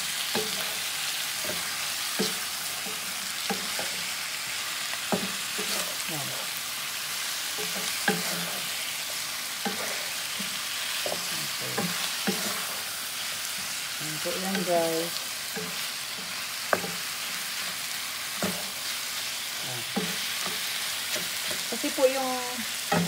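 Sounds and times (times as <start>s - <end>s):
chicken wings sizzling in a pot: 0.0s - 23.0s
wooden spatula scraping a pot: 7.4s - 13.8s.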